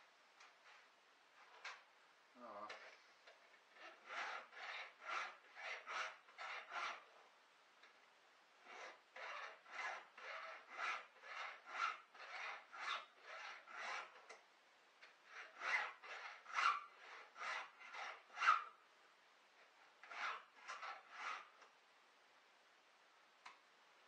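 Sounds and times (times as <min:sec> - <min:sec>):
hand file sharpening chain: 0:03.8 - 0:07.0, 0:08.7 - 0:14.2, 0:15.3 - 0:18.7.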